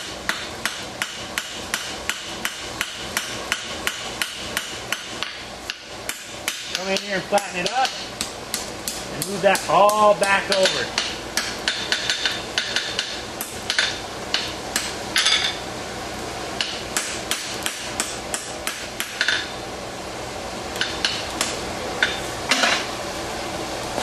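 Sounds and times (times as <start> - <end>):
hammer striking steel on anvil: 0.3 - 15.6, 16.6 - 19.5.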